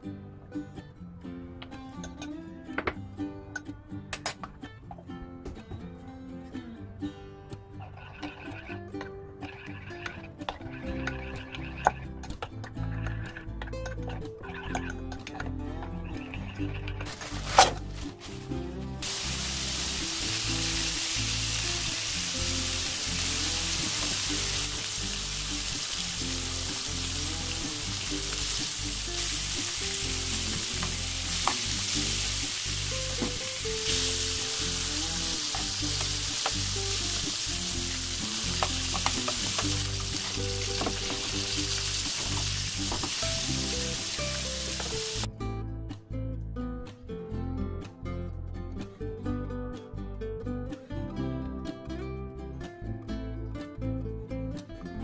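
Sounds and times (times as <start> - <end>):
pork sizzling in a pan: 17.1 - 45.3.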